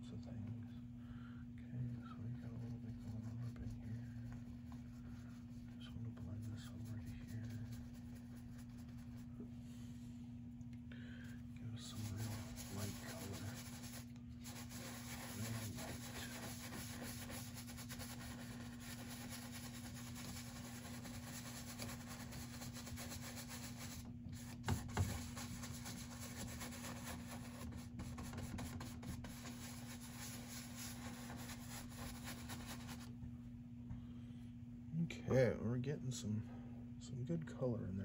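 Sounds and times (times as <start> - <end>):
paintbrush scrubbing on canvas: 2.3 - 9.3, 11.8 - 33.1.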